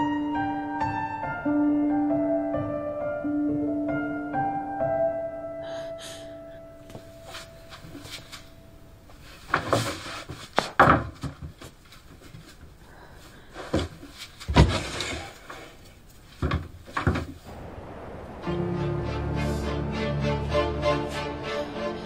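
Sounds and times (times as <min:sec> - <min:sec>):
knocks on wooden planks: 0:09.5 - 0:11.8, 0:13.7 - 0:15.2, 0:16.4 - 0:17.4.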